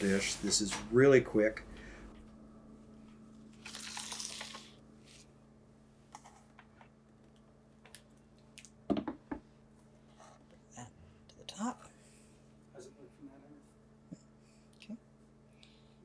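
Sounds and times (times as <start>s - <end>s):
faint steady hum: 0.0s - 16.0s
knock: 8.9s - 9.4s.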